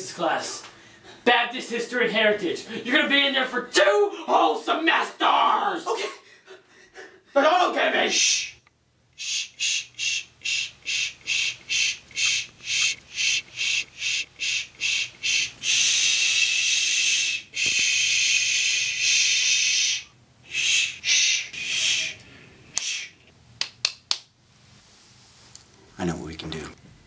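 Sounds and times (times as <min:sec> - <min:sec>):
man shushing: 0:08.1 - 0:08.6, 0:09.2 - 0:23.2.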